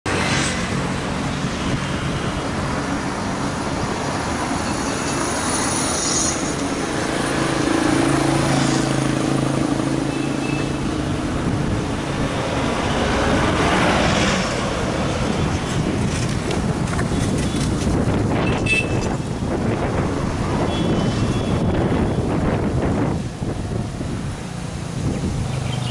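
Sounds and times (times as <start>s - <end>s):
road traffic: 0.0s - 25.9s
vehicle engine hum: 0.1s - 25.9s.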